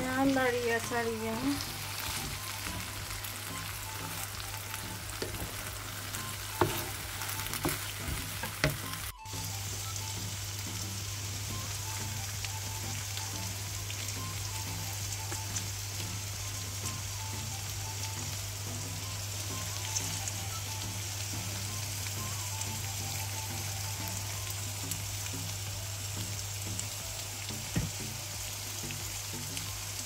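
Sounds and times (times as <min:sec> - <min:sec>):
food sizzling in a frying pan: 0:00.0 - 0:30.0.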